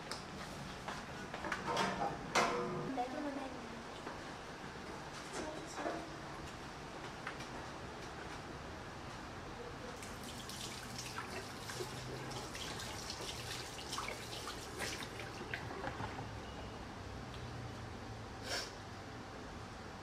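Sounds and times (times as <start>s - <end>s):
water splashing and dripping: 10.0s - 16.2s.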